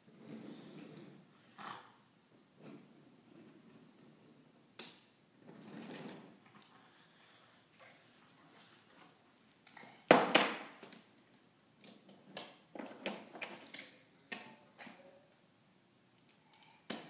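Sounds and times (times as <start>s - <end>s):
wooden toy train clattering: 12.8s - 13.9s.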